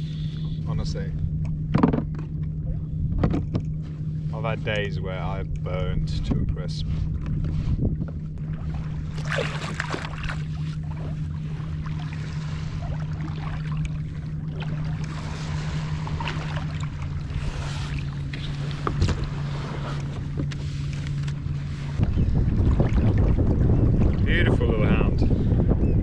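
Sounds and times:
low hum: 0.0s - 26.0s
water lapping at kayak: 0.0s - 26.0s
wind on microphone: 0.0s - 26.0s
small knocks and splashes: 9.1s - 10.8s.

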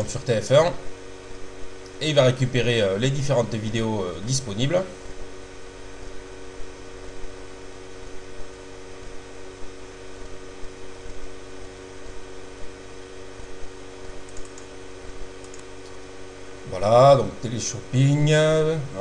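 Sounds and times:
low background hiss: 0.0s - 19.0s
steady electrical hum: 0.0s - 19.0s.

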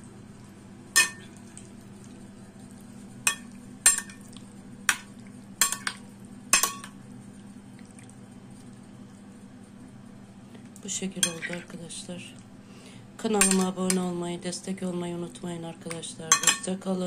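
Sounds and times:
steady low hum: 0.0s - 17.0s
cutlery clinking against glass bowl: 1.0s - 1.3s, 3.3s - 4.2s, 4.9s - 7.0s, 11.2s - 11.6s, 13.4s - 14.0s, 16.3s - 16.7s.

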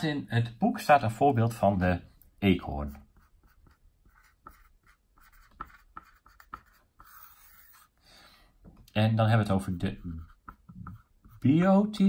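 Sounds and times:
marker scratching on whiteboard: 2.8s - 8.0s, 9.3s - 11.7s.

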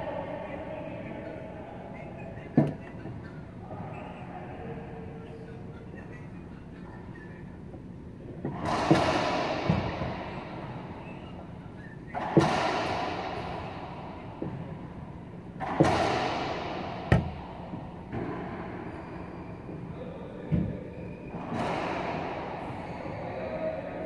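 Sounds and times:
racquet hitting ball: 8.4s - 19.9s, 21.3s - 23.0s.

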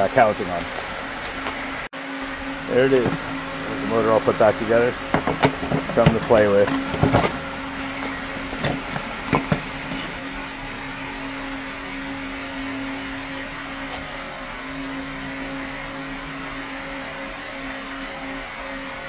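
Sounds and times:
fan motor humming: 0.0s - 19.0s.

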